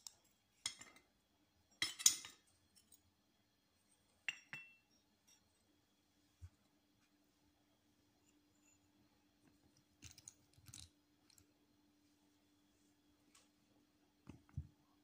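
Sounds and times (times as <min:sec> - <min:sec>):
clay pots clinking: 0:04.2 - 0:05.5.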